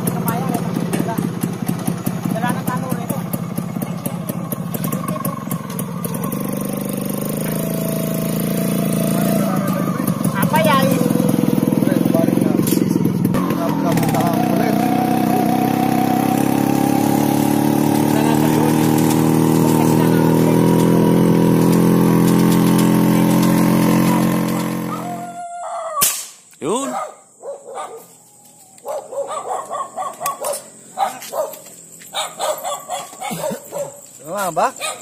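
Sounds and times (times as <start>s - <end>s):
motorcycle engine running: 0.0s - 25.4s
sharp snap: 26.0s - 26.6s
dogs barking: 26.8s - 28.2s, 28.8s - 35.0s.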